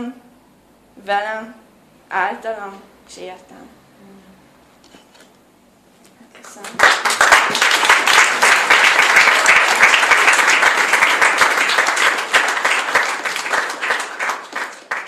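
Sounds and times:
audience applauding: 0:06.6 - 0:15.0.

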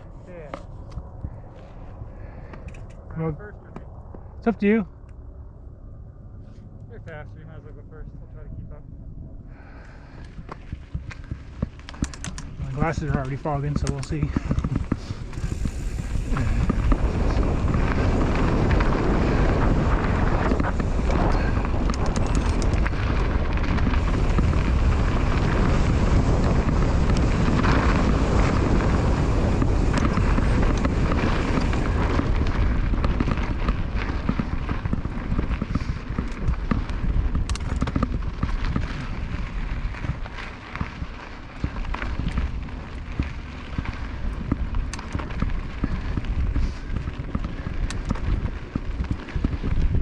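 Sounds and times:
bike tyres rolling on dirt: 0:00.0 - 0:04.8, 0:06.4 - 0:50.0
wind buffeting microphone: 0:00.0 - 0:50.0
bike rattles and knocks: 0:10.1 - 0:50.0.

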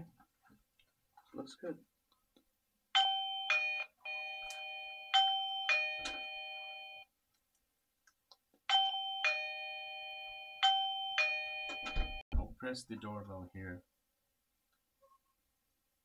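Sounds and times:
doorbell electronic chime melody: 0:03.0 - 0:07.1, 0:08.7 - 0:12.2.

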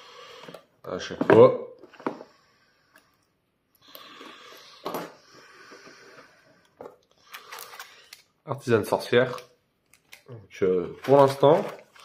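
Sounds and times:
cardboard and plastic rustling: 0:10.6 - 0:12.0
plastic wrapper crinkle: 0:10.9 - 0:12.0.

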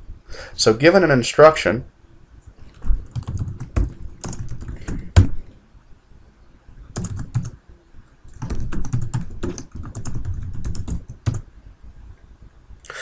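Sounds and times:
computer keyboard typing: 0:02.8 - 0:05.4, 0:06.9 - 0:07.6, 0:08.3 - 0:11.4.

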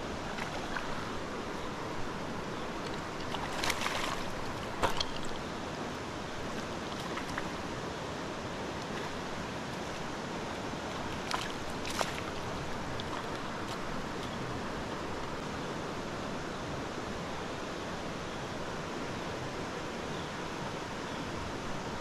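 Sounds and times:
water splashes: 0:00.0 - 0:05.6, 0:06.3 - 0:07.8, 0:08.8 - 0:15.0
stream flowing: 0:00.0 - 0:22.0.

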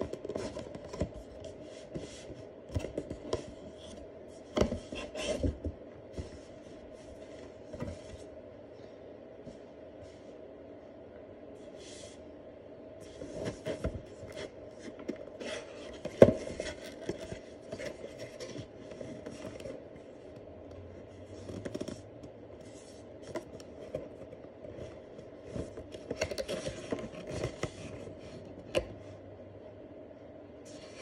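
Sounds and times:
cardboard scraping and rubbing: 0:00.0 - 0:08.3, 0:13.0 - 0:20.0.

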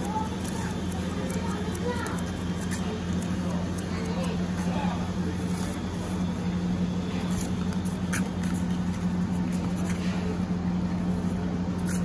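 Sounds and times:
kittens scratching cardboard box: 0:00.0 - 0:04.6
low machine hum: 0:00.0 - 0:12.0.

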